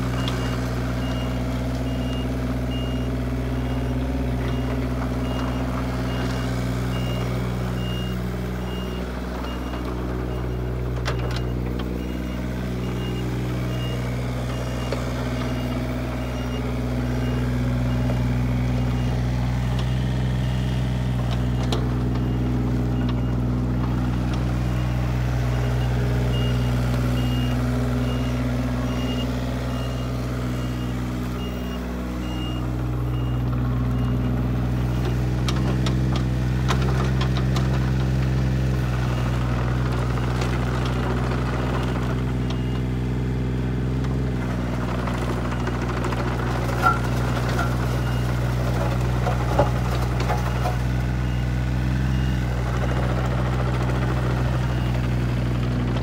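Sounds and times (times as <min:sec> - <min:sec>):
excavator diesel engine running: 0:00.0 - 0:56.0
high alarm beeps: 0:25.7 - 0:34.3.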